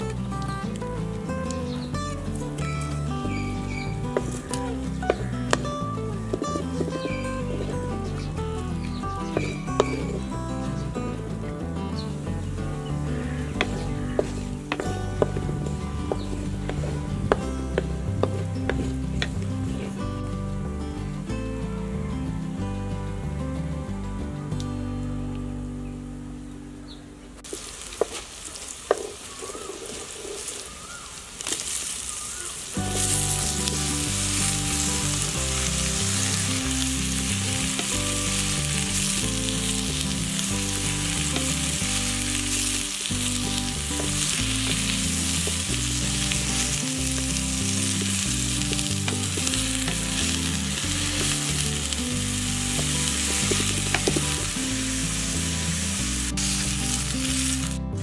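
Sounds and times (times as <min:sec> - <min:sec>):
food sizzling in hot oil: 0:27.5 - 0:57.8.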